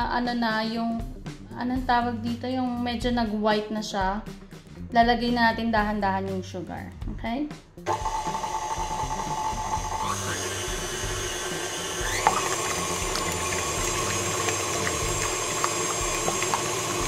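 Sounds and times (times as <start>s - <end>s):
stand mixer whisking: 7.9s - 17.0s.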